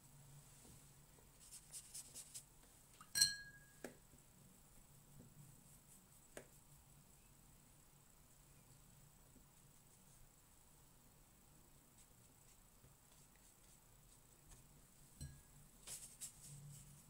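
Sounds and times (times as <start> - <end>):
soft brush strokes: 0.0 - 17.0
light taps: 6.3 - 6.6.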